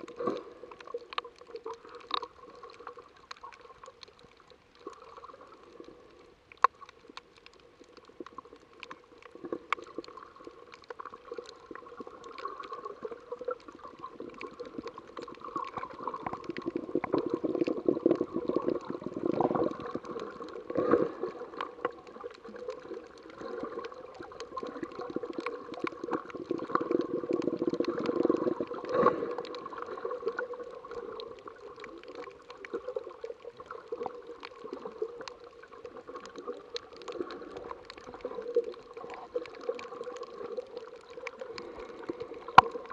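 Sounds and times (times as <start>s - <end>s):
faint clicks: 0.0s - 42.9s
water sloshing and gurgling: 0.0s - 42.9s.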